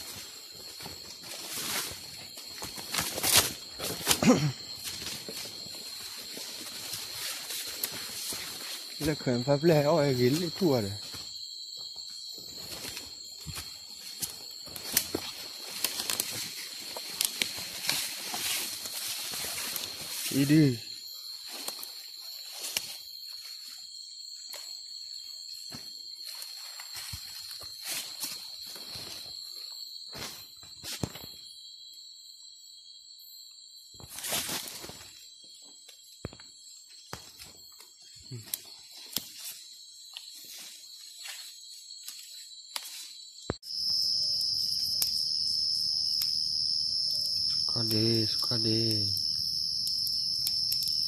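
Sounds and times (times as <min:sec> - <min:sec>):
rustles: 0:00.0 - 0:09.2, 0:12.5 - 0:20.7, 0:34.0 - 0:35.2
high-pitched insect chorus: 0:00.0 - 0:51.0.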